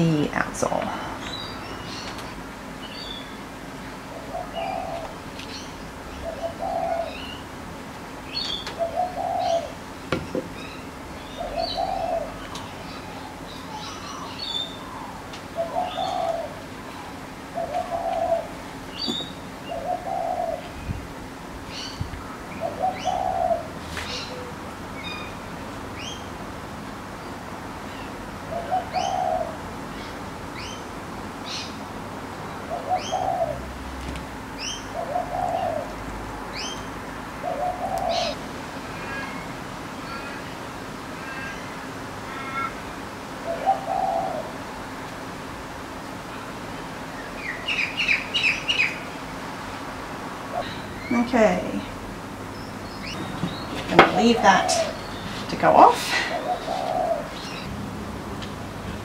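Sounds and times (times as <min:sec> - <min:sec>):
dove cooing: 0:04.1 - 0:05.2, 0:06.1 - 0:07.4, 0:08.4 - 0:09.8, 0:11.3 - 0:20.8, 0:22.5 - 0:24.6, 0:28.5 - 0:29.6, 0:32.7 - 0:33.7, 0:34.9 - 0:36.7, 0:37.4 - 0:38.4, 0:43.4 - 0:44.6, 0:53.1 - 0:57.7
small birds chirping: 0:10.4 - 0:21.0, 0:50.6 - 0:57.7.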